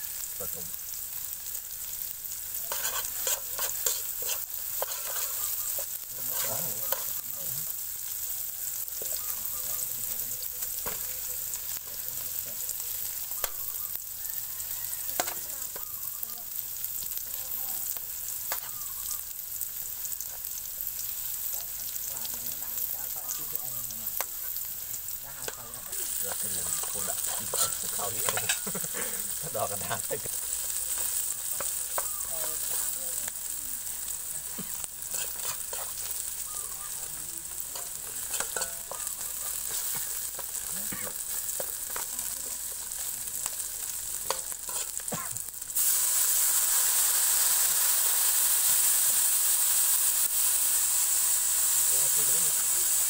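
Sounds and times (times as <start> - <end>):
food sizzling in a wok: 0.0 - 53.0
metal spoon scraping a pan: 2.6 - 8.2, 15.2 - 15.8, 18.4 - 18.8, 25.4 - 45.9.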